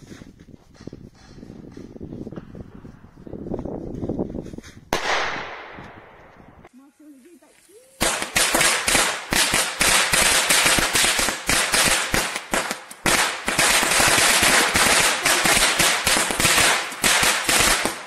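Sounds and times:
firecrackers banging: 8.0 - 18.0.

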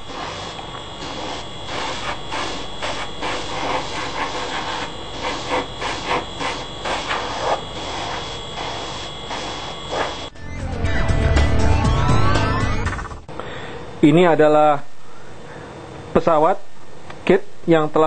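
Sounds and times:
airbrush spraying hiss: 0.0 - 10.3
air compressor running: 0.0 - 10.4.

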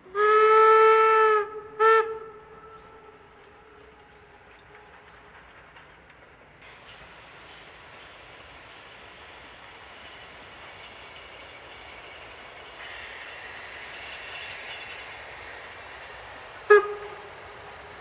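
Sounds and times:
locomotive whistle blast: 0.1 - 4.4, 12.7 - 18.0
thin high whine: 7.3 - 18.0.

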